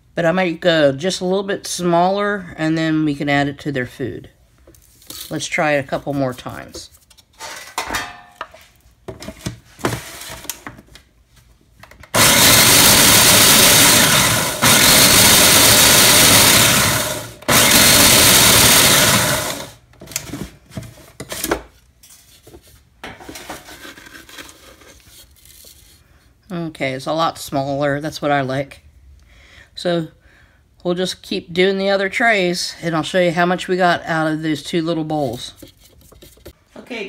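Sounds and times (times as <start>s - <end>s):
food processor grinding: 12.1s - 19.8s.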